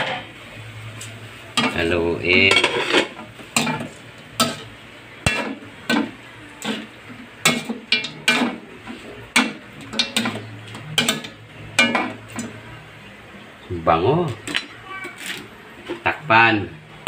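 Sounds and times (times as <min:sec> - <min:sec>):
metal spatula scraping a wok: 0:02.5 - 0:06.0.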